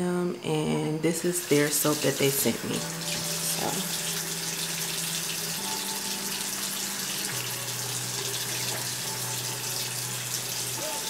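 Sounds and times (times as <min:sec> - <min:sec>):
tap running into sink: 0:08.2 - 0:09.1.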